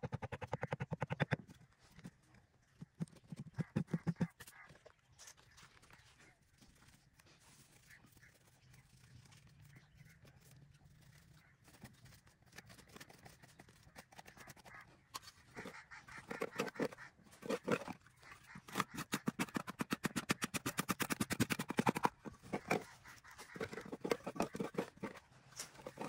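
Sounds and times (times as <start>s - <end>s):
hand scraping soil: 11.1s - 26.0s.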